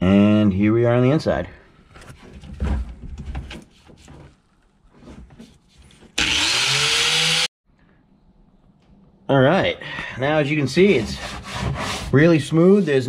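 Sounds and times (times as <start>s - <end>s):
knocks and clatters on plastic: 2.1s - 4.4s
angle grinder spinning up: 6.2s - 7.5s.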